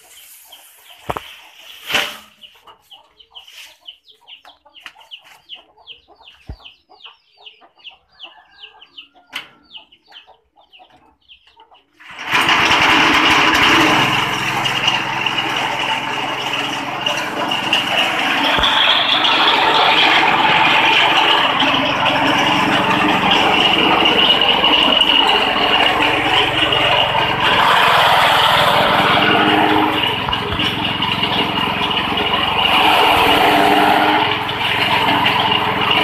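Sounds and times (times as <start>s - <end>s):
chicken clucking: 0.0s - 12.2s, 15.5s - 33.2s
engine-driven grass chopper: 12.0s - 36.0s.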